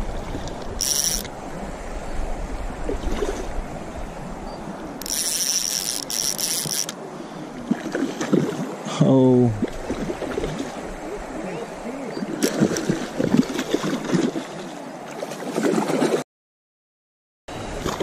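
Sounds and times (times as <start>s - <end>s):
stream water running: 0.0s - 16.2s
fishing reel drag buzzing: 0.8s - 1.3s, 4.9s - 7.0s.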